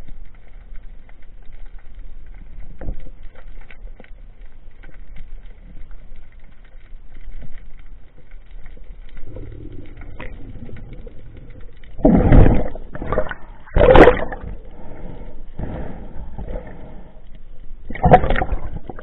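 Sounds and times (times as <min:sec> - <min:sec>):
underwater rushing and crackle: 0:00.0 - 0:19.0
bubbling gurgles of air: 0:09.2 - 0:17.1, 0:17.8 - 0:19.0.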